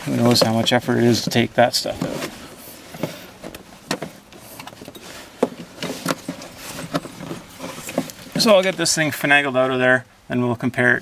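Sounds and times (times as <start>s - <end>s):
rubber belt rubbing: 1.9s - 8.9s.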